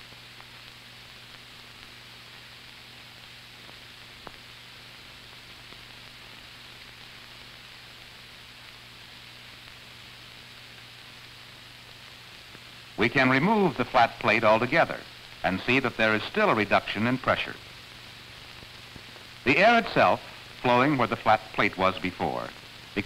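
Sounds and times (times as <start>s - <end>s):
film soundtrack hiss and hum: 0.0s - 23.0s.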